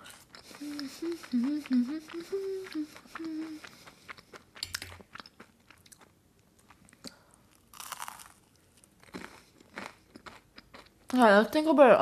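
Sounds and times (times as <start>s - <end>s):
wet chewing clicks: 0.2s - 7.2s
person humming: 0.4s - 3.9s
crunchy bite: 7.6s - 10.7s.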